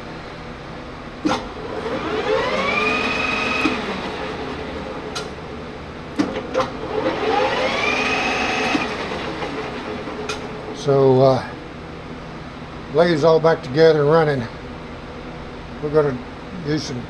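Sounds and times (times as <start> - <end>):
lathe motor whining: 1.2 - 5.4, 6.2 - 11.1.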